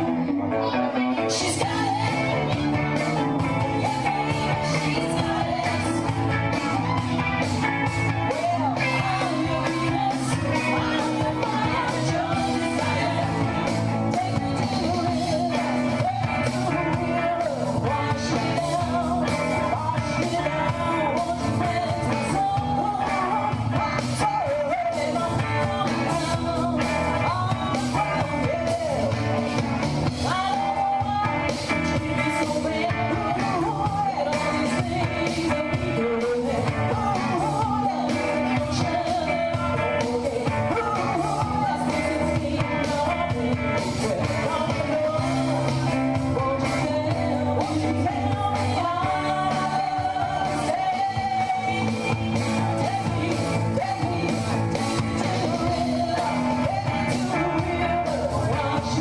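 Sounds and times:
electric guitars: 0.0s - 59.0s
woman singing lead: 0.0s - 59.0s
drum kit beat: 1.3s - 59.0s.

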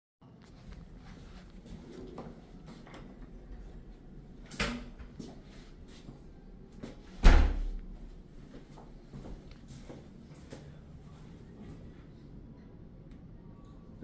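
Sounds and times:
heavy door thud with boom: 7.2s - 7.8s.

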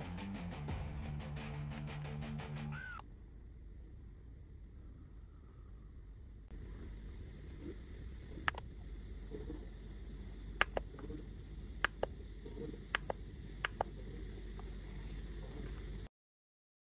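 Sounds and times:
steady low hum: 0.0s - 16.1s
plastic mouse buttons clicking: 10.6s - 10.9s, 11.9s - 12.1s, 13.0s - 13.9s.

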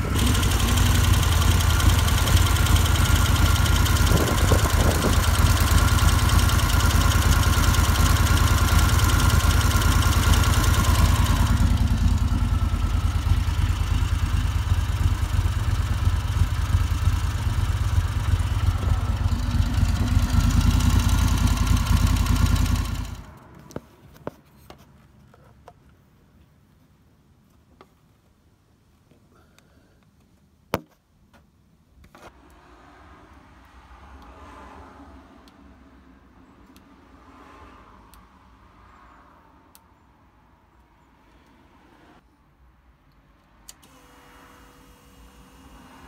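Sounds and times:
faint engine ticks: 0.0s - 23.3s
motorcycle engine fast idle: 0.0s - 23.3s.

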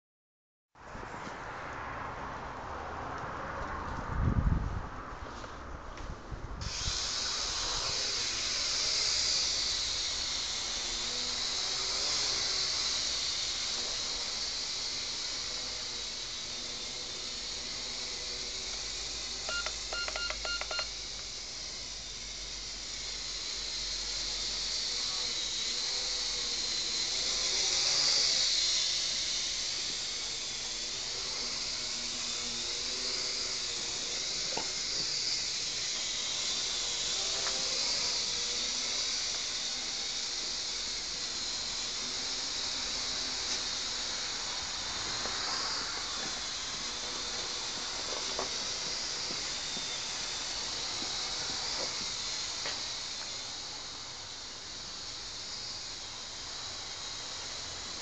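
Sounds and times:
toy drone motors whining: 6.6s - 58.0s
short electronic beeps: 19.5s - 20.9s.

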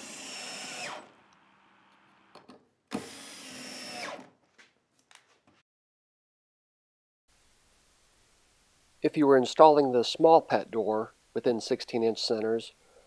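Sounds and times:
cordless drill driving screws: 0.0s - 2.3s, 2.9s - 4.3s.

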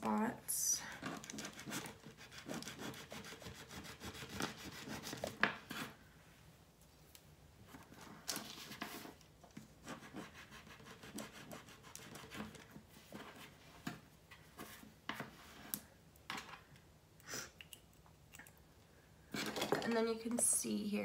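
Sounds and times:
craft knife scraping resin: 0.9s - 6.0s.

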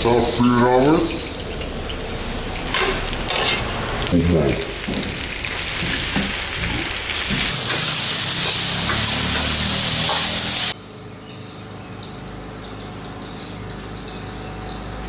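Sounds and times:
vegetables sizzling in hot oil: 1.1s - 10.8s.

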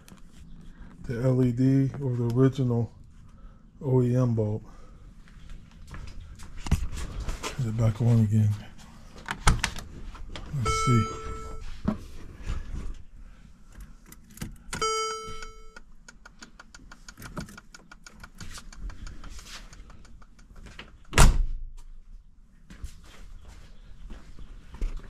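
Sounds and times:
electronic chime: 10.6s - 11.6s, 14.8s - 15.8s
quick clicks: 16.0s - 20.6s.

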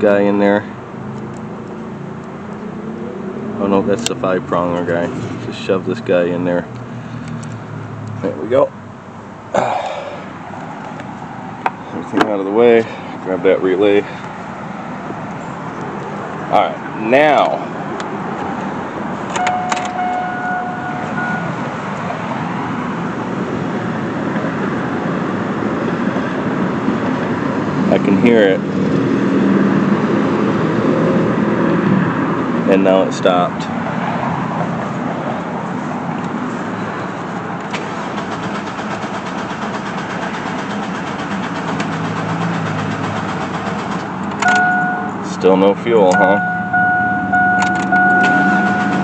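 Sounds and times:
ignition clicks: 19.3s - 21.5s, 43.3s - 45.1s, 46.0s - 49.0s
steady warning tone: 19.4s - 22.0s, 44.4s - 49.0s
engine cranking: 37.6s - 45.1s, 47.3s - 49.0s.

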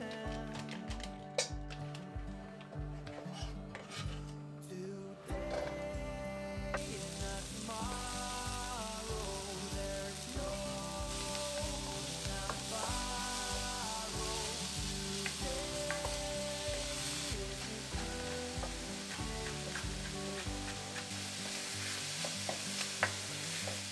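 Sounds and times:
background music: 0.0s - 23.9s
onion sizzling in a pan: 6.7s - 23.9s.

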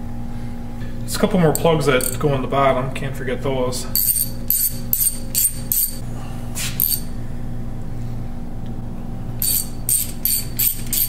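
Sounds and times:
low hum: 0.0s - 11.0s
socket ratchet clicking: 1.6s - 2.2s, 4.0s - 6.0s, 9.4s - 11.0s.

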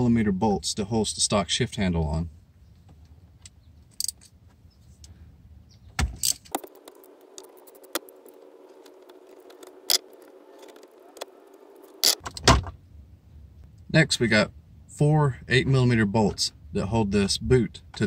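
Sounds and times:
metal clinking: 3.9s - 4.3s.

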